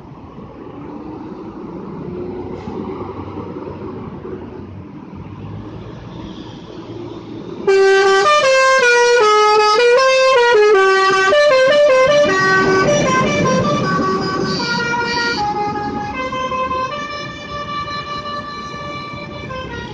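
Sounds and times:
coach engine: 6.8s - 19.9s
musical air horn playing a tune: 7.7s - 19.9s.

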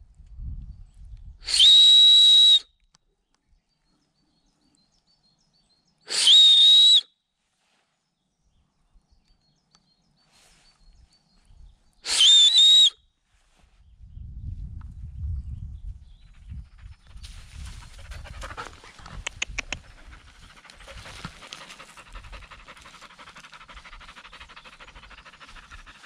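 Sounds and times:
person whistling loudly: 1.4s - 2.7s, 6.1s - 7.1s, 12.0s - 13.0s.

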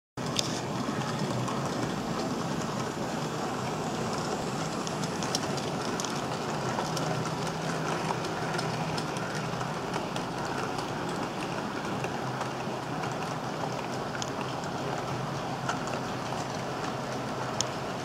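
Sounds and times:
wheels clicking over rail joints: 0.2s - 18.0s
model train motor whirring: 0.3s - 11.4s.

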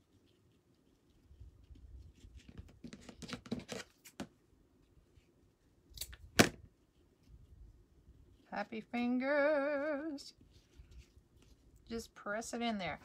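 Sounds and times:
cord rustling and crackling: 0.0s - 5.3s, 10.1s - 13.0s.

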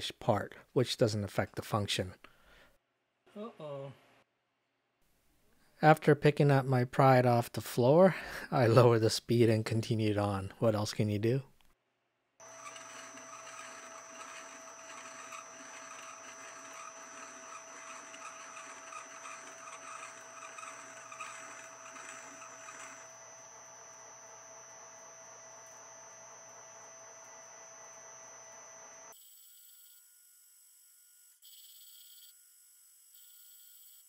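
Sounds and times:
lathe motor whine: 12.4s - 30.1s.

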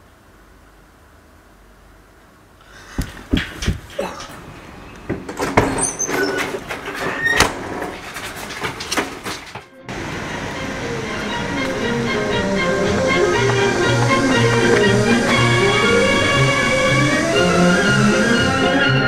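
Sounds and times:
hurried footsteps: 2.7s - 4.5s
steel door banging open: 5.2s - 9.6s.

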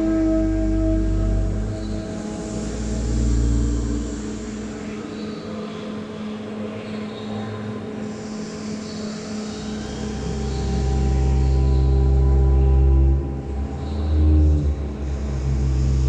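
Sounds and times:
rushing hissy noise: 0.0s - 5.4s
sustained droning tones: 0.0s - 6.5s, 7.8s - 16.0s.

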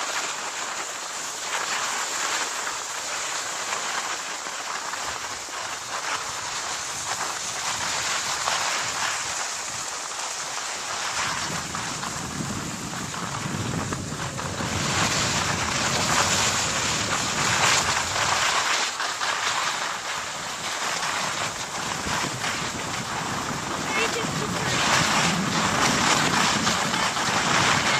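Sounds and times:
skis sliding over snow: 0.0s - 27.9s
wind buffeting microphone: 11.0s - 18.7s, 19.8s - 27.9s.

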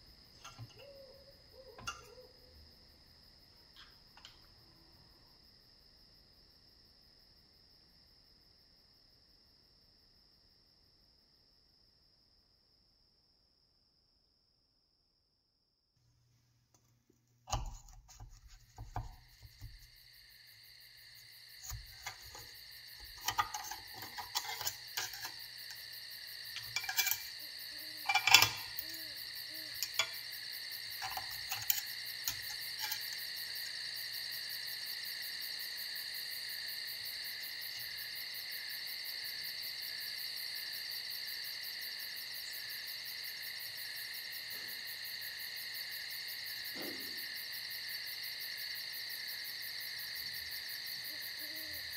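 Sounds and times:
insects chirring: 0.0s - 10.9s, 17.5s - 51.9s
knife and fork scraping a plate: 1.8s - 2.1s, 17.5s - 19.9s, 21.6s - 25.9s, 26.5s - 30.2s, 31.0s - 33.8s.

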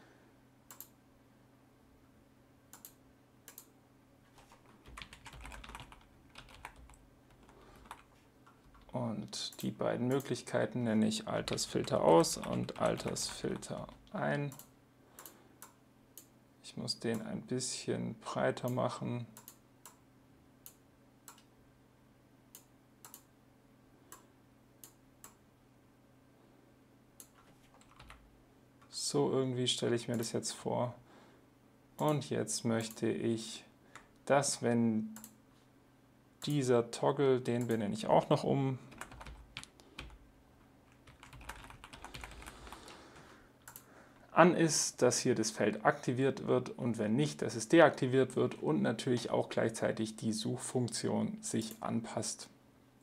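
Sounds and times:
low steady hum: 0.0s - 53.0s
computer mouse clicks: 0.7s - 1.0s, 2.7s - 3.7s, 14.5s - 16.3s, 19.4s - 20.0s, 22.5s - 23.3s, 35.2s - 35.4s, 43.6s - 43.9s
typing on computer keyboard: 4.4s - 9.0s, 11.4s - 14.2s, 27.2s - 28.2s, 38.9s - 40.2s, 40.9s - 42.8s.

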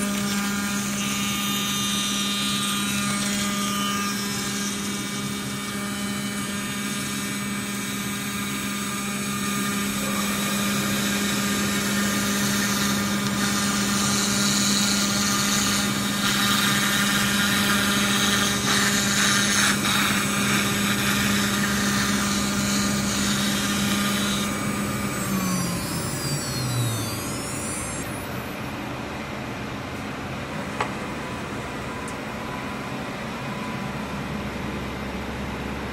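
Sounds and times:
high cutting noise of milling: 0.0s - 35.9s
router spindle hum: 0.0s - 35.9s
spindle winding down: 18.3s - 28.6s.

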